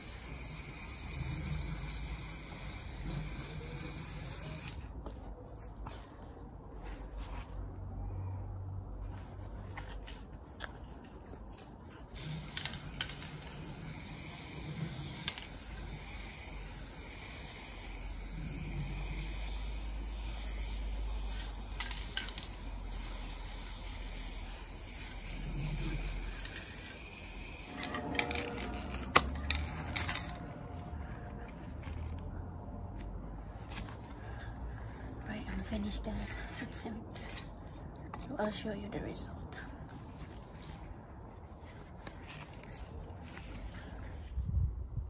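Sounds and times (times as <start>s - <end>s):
aerosol spray can hissing: 0.0s - 4.8s, 12.2s - 28.0s.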